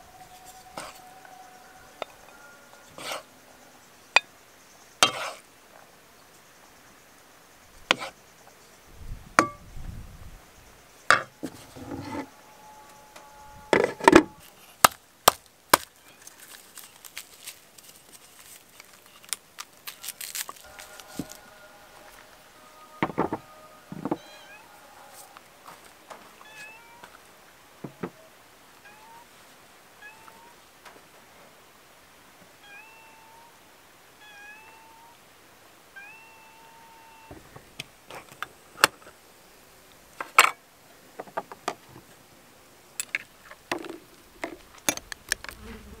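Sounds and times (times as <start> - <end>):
wooden spatula scraping metal pan: 0.4 - 1.0, 2.9 - 3.3, 5.0 - 5.4, 11.2 - 12.3.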